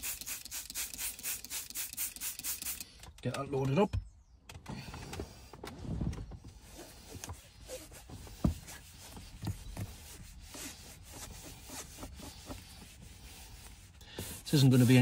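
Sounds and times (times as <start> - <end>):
scrub pad scrubbing plastic panel: 7.7 - 15.0.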